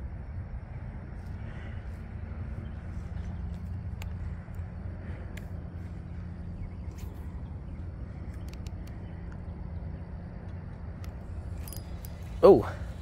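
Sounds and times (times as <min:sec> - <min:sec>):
low outdoor rumble: 0:00.0 - 0:13.0
faint short clicks: 0:08.3 - 0:09.4.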